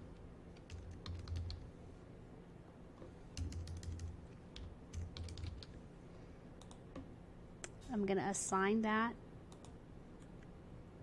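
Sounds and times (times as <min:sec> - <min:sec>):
typing on a keyboard: 0:00.5 - 0:01.7, 0:03.4 - 0:05.8.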